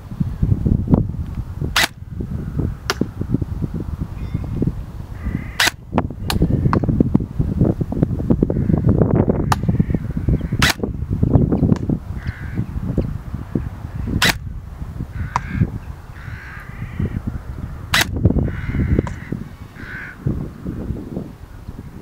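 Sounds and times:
airsoft rifle shots: 1.8 - 2.0, 5.6 - 6.4, 10.6 - 10.8, 14.2 - 14.5, 17.9 - 18.2
bird calling: 4.2 - 6.9, 8.5 - 14.3, 15.1 - 20.3.

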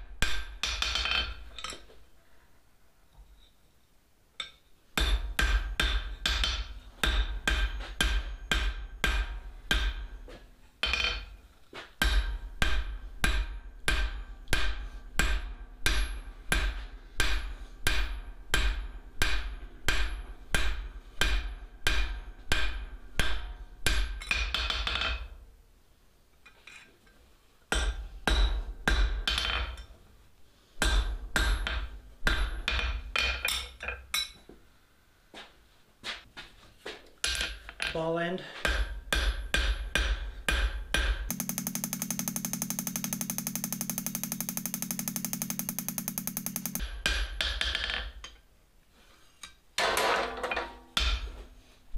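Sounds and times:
hammer ringing on hot steel: 41.3 - 47.2.

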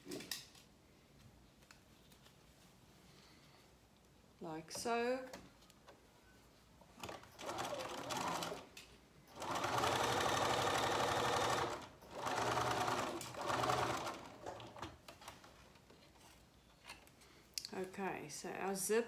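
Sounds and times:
sewing machine stitching: 7.0 - 8.7, 9.3 - 15.3.

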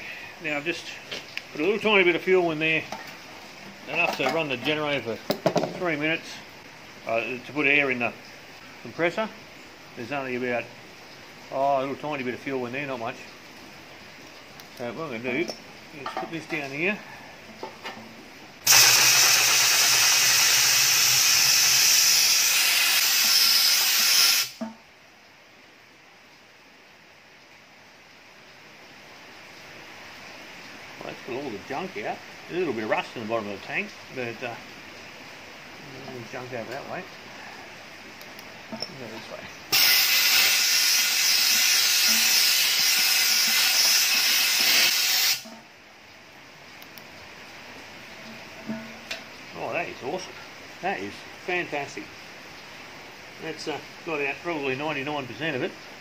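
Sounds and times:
compressed air blow gun hissing: 18.6 - 24.6, 39.7 - 45.5.

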